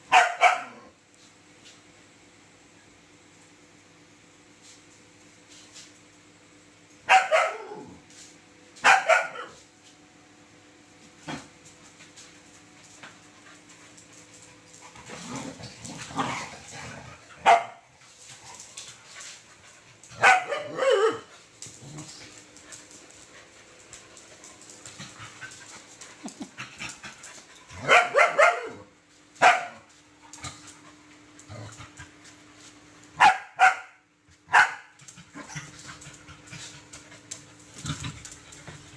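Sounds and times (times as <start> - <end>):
dogs barking and yapping: 0.1 - 0.8, 7.1 - 7.9, 8.8 - 9.6, 17.1 - 21.3, 22.4 - 29.9, 33.2 - 38.9.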